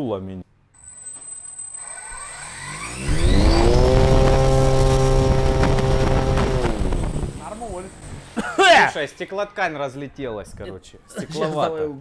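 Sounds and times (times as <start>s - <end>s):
electric motor whine: 1.8s - 8.0s
propeller wash rushing: 3.0s - 8.4s.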